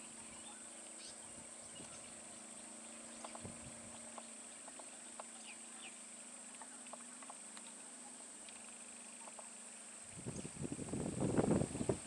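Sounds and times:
low steady hum: 0:00.0 - 0:12.0
steady high hiss: 0:00.0 - 0:12.0.

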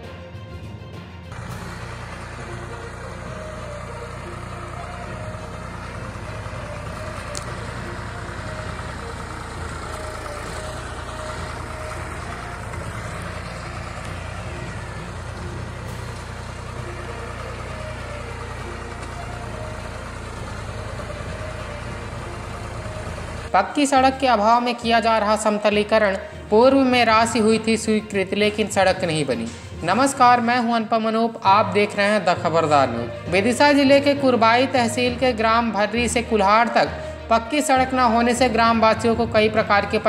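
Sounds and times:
tractor diesel engine running: 0:00.0 - 0:40.0
implement dragging over dirt road: 0:01.3 - 0:30.6.

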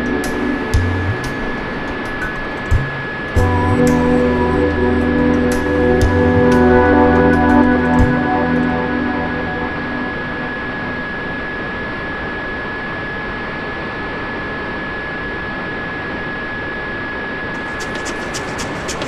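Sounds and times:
music with ticking beat: 0:00.0 - 0:08.8
high electric motor whine: 0:00.0 - 0:19.0
wind and propeller rush: 0:17.6 - 0:19.0.

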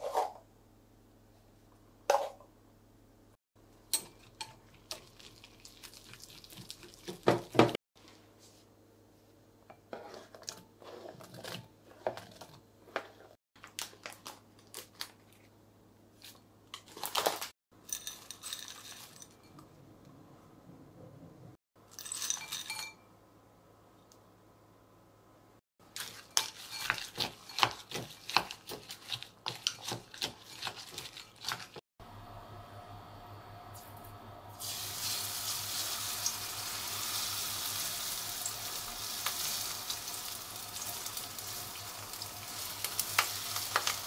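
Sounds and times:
utensils clinking in glass bowl: 0:03.9 - 0:05.3, 0:17.2 - 0:19.7, 0:21.8 - 0:23.1, 0:26.0 - 0:31.8.

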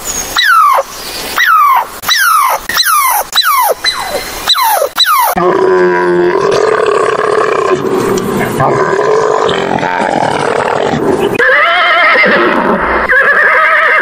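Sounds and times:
squirrel calling: 0:00.4 - 0:05.4
camel grunting: 0:05.4 - 0:11.3.

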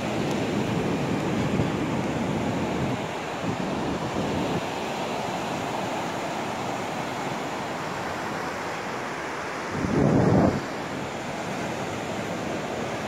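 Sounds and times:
wind on microphone: 0:00.0 - 0:04.9, 0:09.7 - 0:11.0
surf breaking on a sandy beach: 0:00.0 - 0:13.0.

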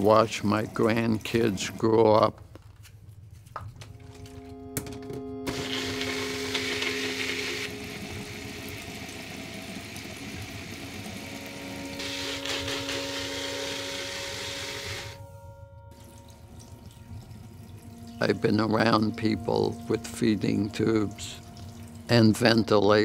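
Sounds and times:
soft background music: 0:00.0 - 0:23.0
blender whirring: 0:05.5 - 0:07.7, 0:12.0 - 0:15.2.

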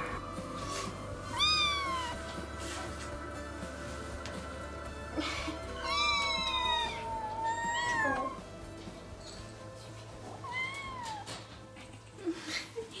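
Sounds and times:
soft background music: 0:00.0 - 0:13.0
kittens meowing: 0:01.2 - 0:02.2, 0:05.8 - 0:08.4, 0:10.4 - 0:11.4.

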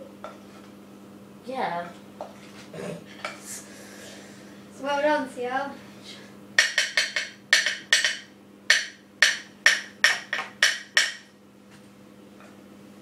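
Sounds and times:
spoon knocking against bowl: 0:06.6 - 0:11.3.

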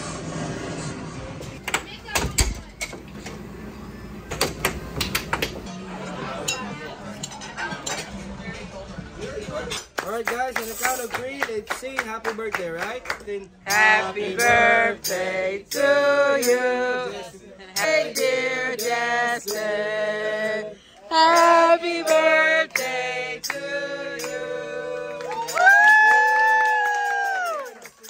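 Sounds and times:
hands clapping: 0:09.9 - 0:13.5, 0:25.0 - 0:28.0
group singing a birthday song: 0:13.5 - 0:25.5.

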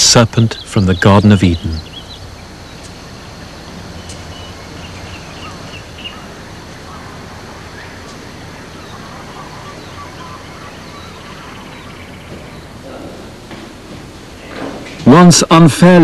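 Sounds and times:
low hiss and hum: 0:00.0 - 0:16.0
high bird chirps: 0:00.3 - 0:12.8.

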